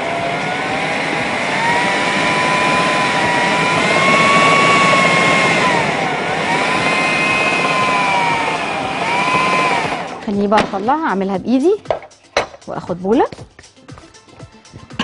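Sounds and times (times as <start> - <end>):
food processor motor whine: 0.0 - 10.5.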